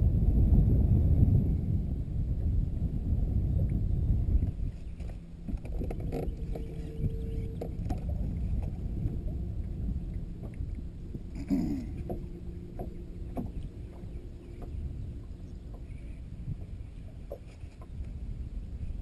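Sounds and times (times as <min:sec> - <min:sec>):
wind rumble on microphone: 0:00.0 - 0:19.0
clicks and knocks of fishing tackle: 0:05.0 - 0:08.8
water slapping against boat hull: 0:11.9 - 0:18.1.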